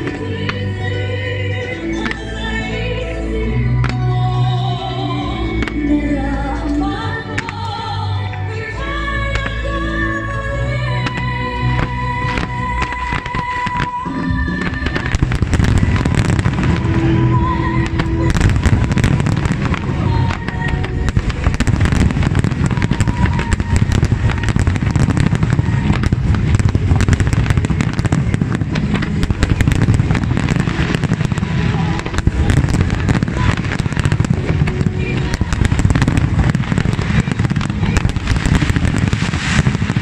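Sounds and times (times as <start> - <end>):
show music: 0.0 - 40.0
low rumble and crackle: 9.3 - 40.0
firework shells bursting: 17.8 - 40.0.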